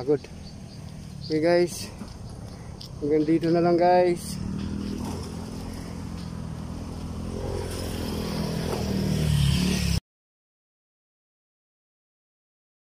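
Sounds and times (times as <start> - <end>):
vehicle engine running: 0.0 - 9.7.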